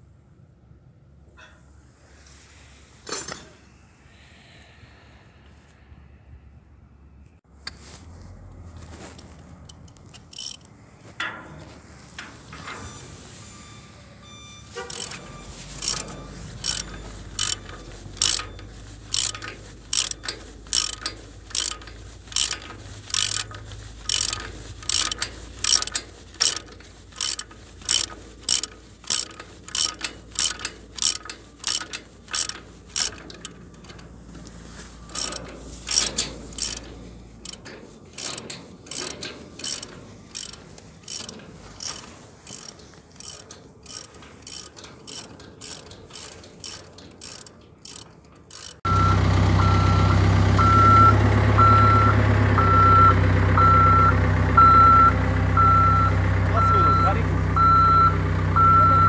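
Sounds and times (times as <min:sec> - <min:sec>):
ratchet wrench clicking: 0:09.7 - 0:10.7, 0:14.8 - 0:48.9.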